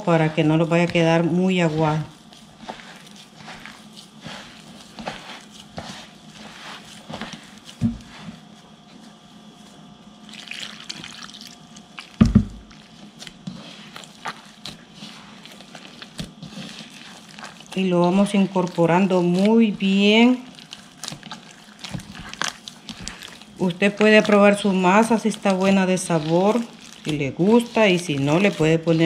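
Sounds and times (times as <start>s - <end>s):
hand mixing dough: 0.0s - 29.0s
wet squelches and drips: 10.2s - 14.8s, 15.4s - 24.4s, 25.1s - 28.8s.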